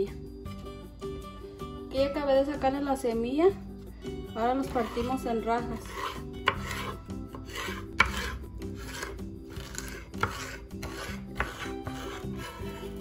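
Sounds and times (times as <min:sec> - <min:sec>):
quiet background music: 0:00.0 - 0:13.0
knife slicing on wooden board: 0:05.8 - 0:13.0.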